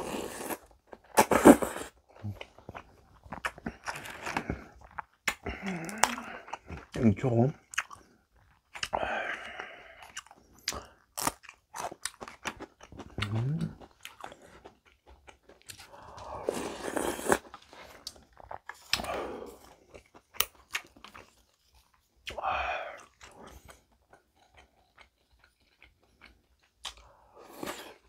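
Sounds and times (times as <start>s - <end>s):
crunching and chewing pepper: 0.4s - 28.0s
noisy slurp of soup: 16.3s - 17.4s.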